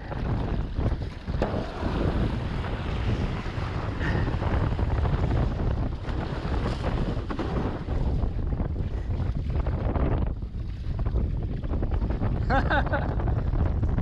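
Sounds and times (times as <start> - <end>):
water rushing and splashing: 0.0 - 9.0
wind buffeting microphone: 0.0 - 14.0.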